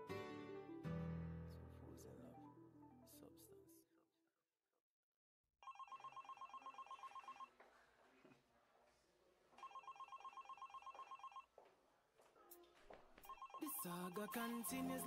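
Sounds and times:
telephone ringing: 5.6 - 7.5, 9.6 - 11.5, 13.3 - 15.0.

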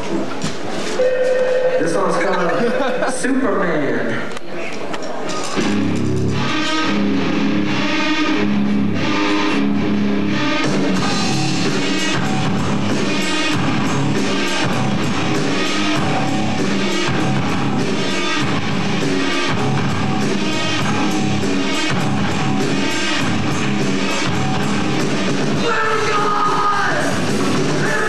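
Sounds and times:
distorted electric guitars: 5.5 - 28.0
drum kit rock beat: 5.6 - 28.0.

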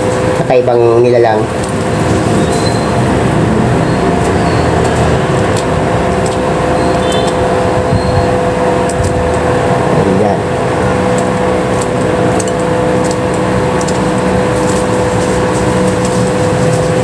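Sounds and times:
machine hum: 0.0 - 17.0
utensils clicking in ceramic bowl: 4.2 - 7.4, 11.1 - 17.0.

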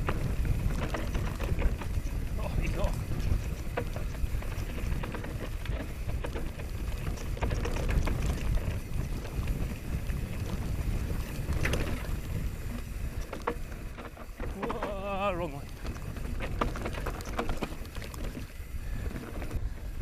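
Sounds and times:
bike clicks and rattles: 0.0 - 20.0
wind rushing over microphone: 0.0 - 20.0.

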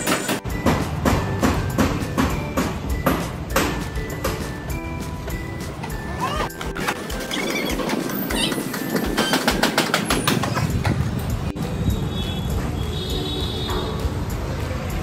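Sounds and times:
metal knocks and clanks: 6.6 - 11.4.

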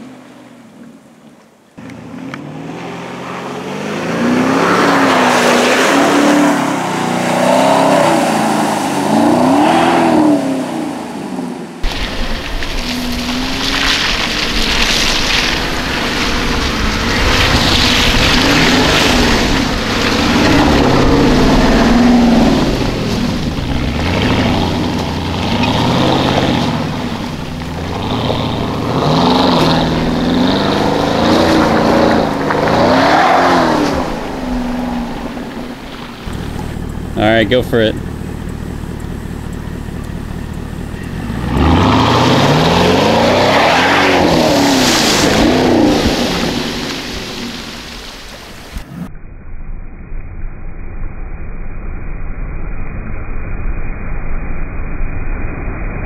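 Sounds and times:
suv engine revving: 1.8 - 49.1
deep rumble: 11.4 - 43.5, 44.3 - 56.0.

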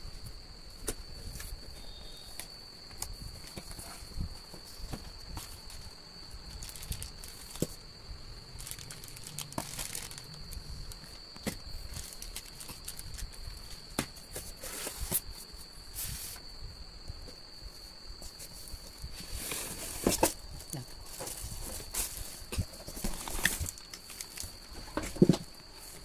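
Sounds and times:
plastic bags crinkling: 6.5 - 7.8, 8.5 - 13.9, 22.8 - 24.6.

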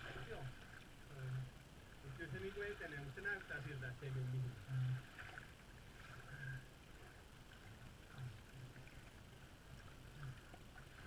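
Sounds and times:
soft short low sounds: 4.2 - 11.0.

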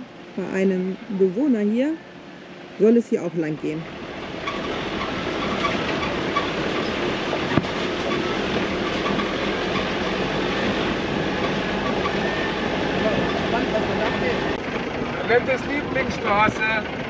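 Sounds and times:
tyres rumbling on dirt track: 2.8 - 17.0
car body rattling: 3.9 - 17.0.

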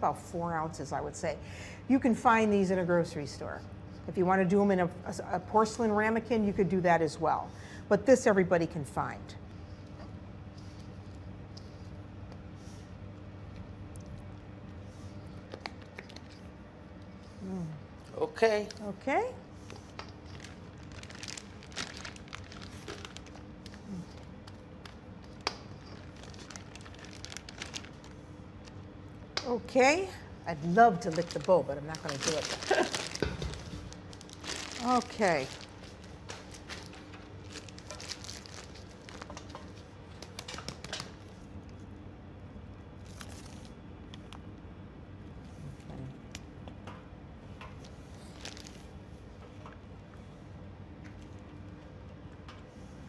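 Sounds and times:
faint steady hum: 0.0 - 53.0
plastic bag crinkling: 19.8 - 24.0, 24.8 - 28.8, 30.6 - 41.3, 43.0 - 43.7, 48.2 - 49.0.

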